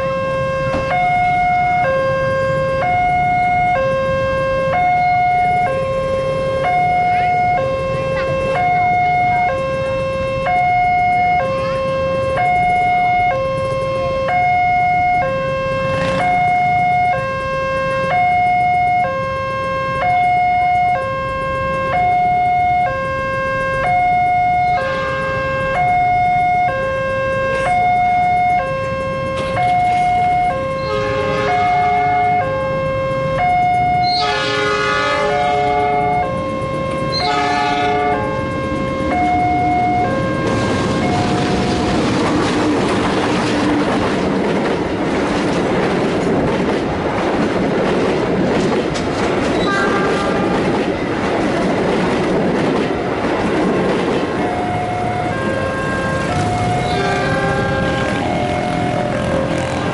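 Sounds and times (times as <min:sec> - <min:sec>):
level-crossing alarm two-tone: 0:00.0 - 0:42.2, 0:54.2 - 0:59.9
train horn blasts: 0:03.8 - 0:41.3, 0:49.6 - 0:50.6, 0:54.5 - 0:59.9.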